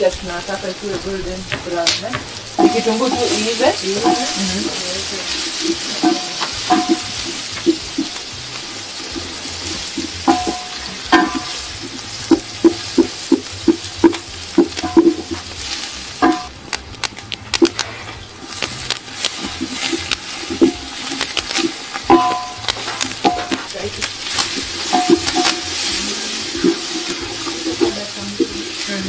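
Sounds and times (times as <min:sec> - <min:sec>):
spoon knocking and scraping pan: 0:00.0 - 0:15.6, 0:19.3 - 0:29.0
onions sizzling in oil: 0:00.0 - 0:29.0.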